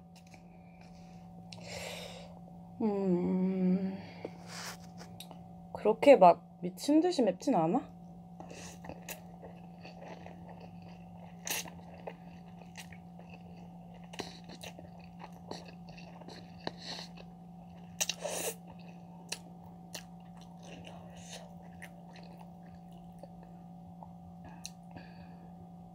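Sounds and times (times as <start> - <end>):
faint low hum: 0.0 - 25.9
person chewing noodles: 8.3 - 25.0.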